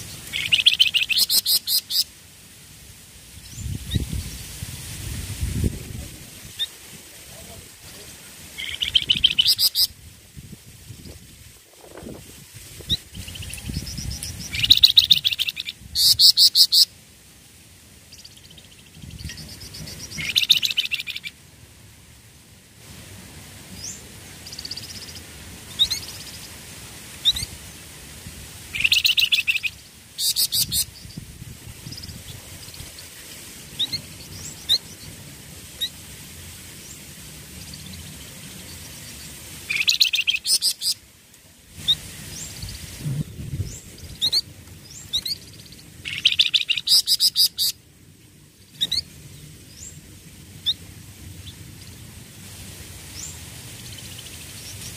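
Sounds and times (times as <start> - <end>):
songbird singing: 0.0 - 2.1, 5.6 - 10.0, 12.8 - 16.9, 18.0 - 21.4, 23.7 - 26.6, 27.2 - 27.9, 28.7 - 35.2, 36.8 - 41.1, 41.8 - 47.8, 48.4 - 52.0.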